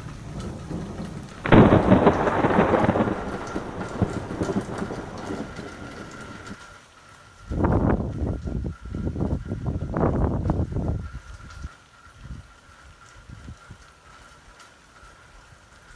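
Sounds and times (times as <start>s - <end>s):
thunder rumbling: 0.0s - 6.6s
rain falling: 0.0s - 15.9s.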